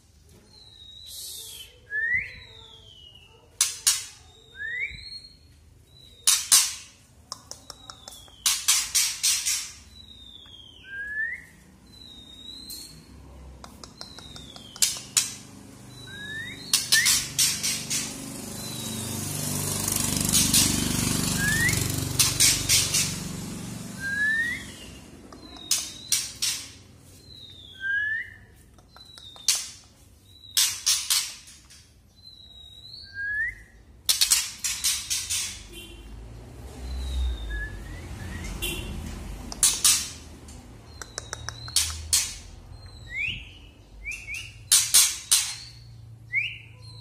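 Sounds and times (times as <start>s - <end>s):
bird whistling: 0.7s - 3.3s, 8.3s - 13.0s, 15.9s - 17.5s, 21.3s - 23.1s, 24.0s - 26.6s, 27.2s - 29.6s, 32.2s - 35.5s, 36.9s - 38.8s, 40.9s - 47.0s
bird dry crackling clicks: 13.6s - 15.4s, 39.5s - 42.4s.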